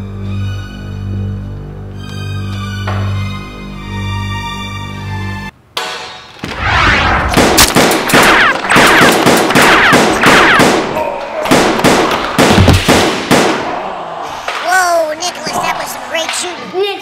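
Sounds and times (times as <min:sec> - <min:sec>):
rapid-fire gunshots: 0:06.7 - 0:13.8.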